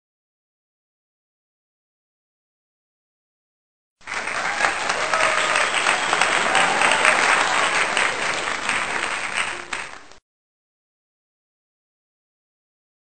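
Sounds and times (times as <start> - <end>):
crowd clapping: 4.0 - 10.2.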